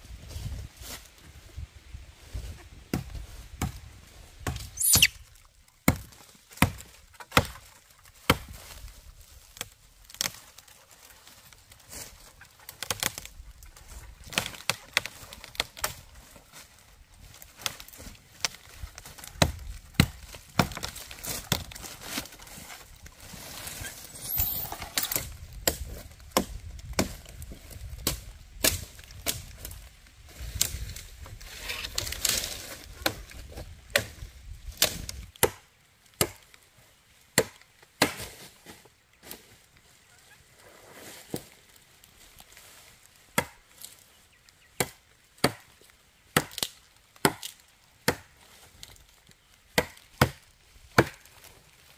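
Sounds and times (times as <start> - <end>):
dry leaves rustling: 0.0 - 34.8, 38.3 - 44.7
machete chopping wooden branch: 4.4 - 5.2, 5.8 - 8.8, 19.4 - 22.3, 24.1 - 29.6, 33.9 - 36.4, 37.4 - 38.5, 43.4 - 43.6, 44.8 - 45.7, 46.3 - 48.3, 49.7 - 51.3.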